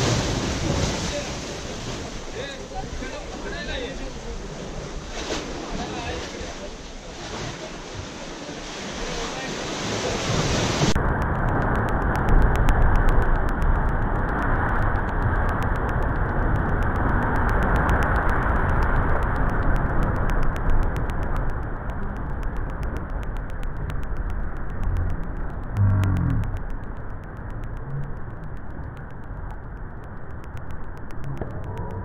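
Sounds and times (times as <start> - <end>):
sea water surging and splashing: 0.0 - 32.0
deep rumble: 10.8 - 32.0.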